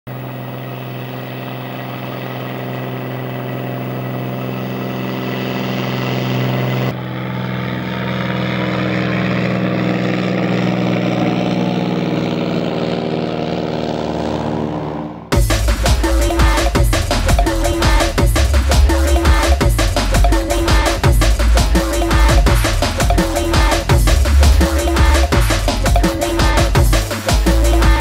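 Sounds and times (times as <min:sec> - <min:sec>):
propeller plane droning overhead: 0:00.1 - 0:28.0.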